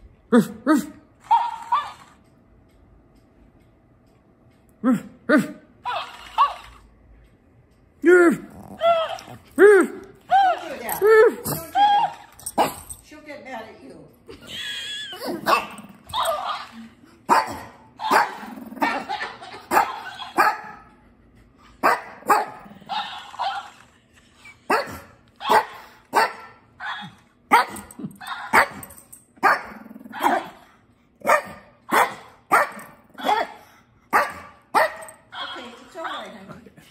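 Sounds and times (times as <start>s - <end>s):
toy playing back barks: 1.2s - 2.2s, 5.8s - 6.9s, 8.1s - 12.7s, 18.0s - 20.8s, 22.3s - 24.0s, 34.8s - 36.3s
dog barking: 15.4s - 16.7s, 17.3s - 18.4s, 19.7s - 20.8s, 21.8s - 23.7s, 24.7s - 30.6s, 31.2s - 35.5s.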